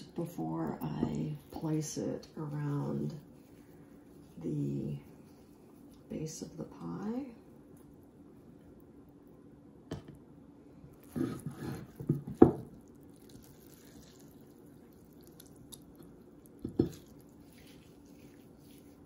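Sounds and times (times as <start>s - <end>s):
wet squelches and drips: 12.6s - 19.0s.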